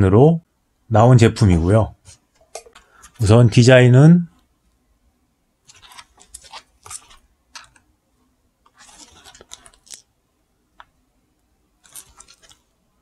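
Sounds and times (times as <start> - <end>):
gloves scraping a sneaker: 5.7 - 7.8, 8.7 - 10.1, 11.8 - 12.8.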